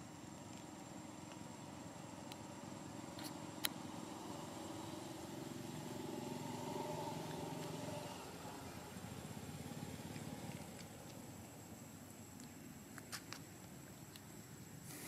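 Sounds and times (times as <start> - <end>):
vehicle engine running: 2.9 - 11.7.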